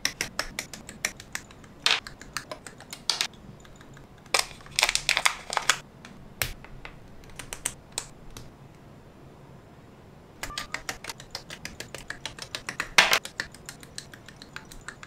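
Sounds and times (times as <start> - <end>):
plastic parts clicking together: 0.1 - 5.8.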